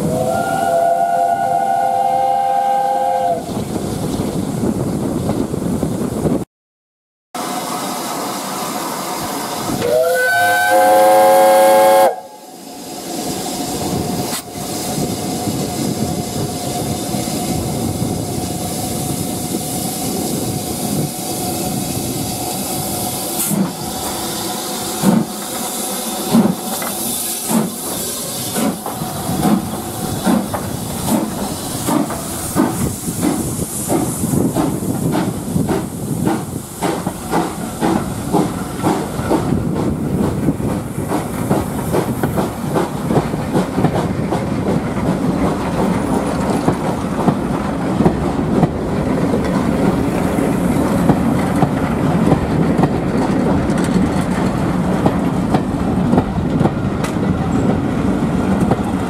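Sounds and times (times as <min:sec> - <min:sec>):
steam locomotive whistle: 0:00.0 - 0:03.5, 0:09.7 - 0:12.6
steam hissing: 0:07.4 - 0:53.7
steam train running noise: 0:07.4 - 0:59.0.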